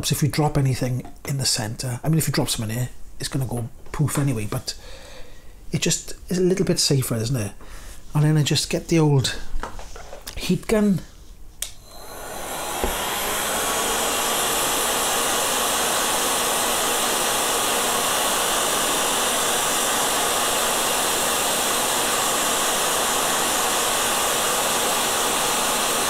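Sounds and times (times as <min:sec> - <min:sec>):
heat gun blowing: 0:11.6 - 0:26.0.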